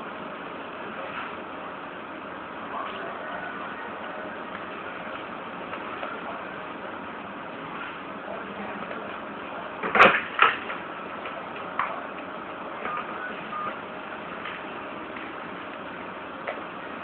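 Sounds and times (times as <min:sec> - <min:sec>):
steady background hum: 0:00.0 - 0:17.0
short faint beeps: 0:12.8 - 0:13.8.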